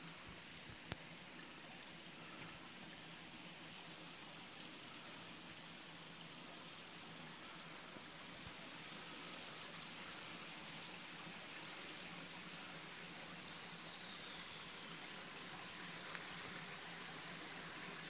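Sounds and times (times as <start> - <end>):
water trickling over rocks: 0.0 - 18.0.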